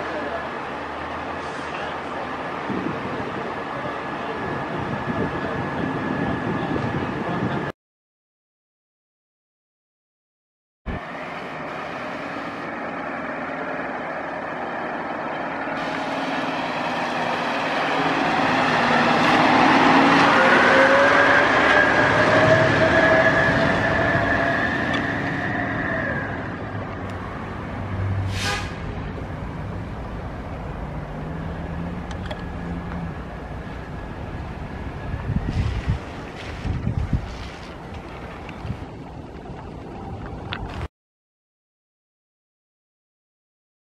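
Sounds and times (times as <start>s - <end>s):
fire engine passing by: 0.0s - 7.7s, 10.9s - 40.8s
brief hiss: 28.2s - 28.8s.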